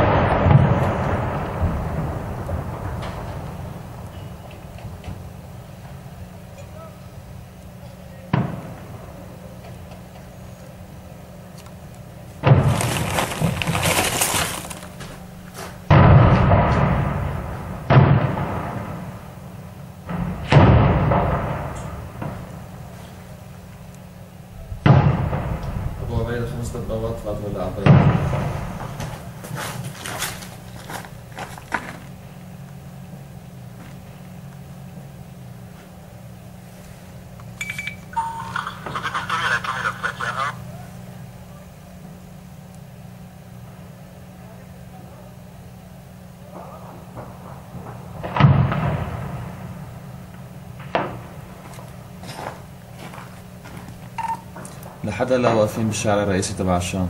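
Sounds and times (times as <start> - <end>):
explosion booms: 0.0 - 5.3, 12.4 - 13.6, 15.9 - 19.2, 20.1 - 22.6, 24.6 - 29.4, 47.2 - 49.9
gunfire crackling: 0.0 - 6.1, 8.3 - 9.9, 12.4 - 23.4, 24.7 - 32.2, 47.0 - 55.9
tank engine droning: 0.0 - 57.0
sharp crack: 12.4 - 23.3, 24.8 - 32.8, 46.5 - 52.4.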